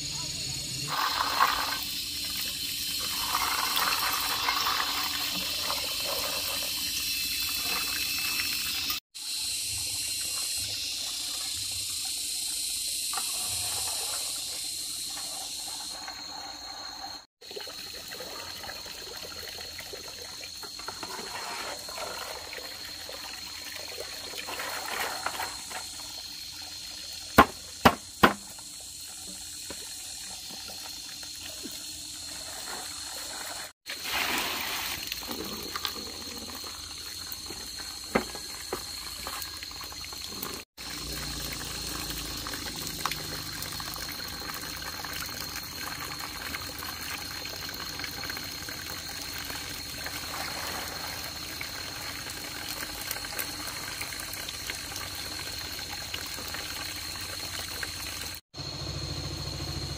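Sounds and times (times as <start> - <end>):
water running and splashing: 0.8 - 9.0, 17.4 - 58.4
sharp knocks: 27.4 - 28.6.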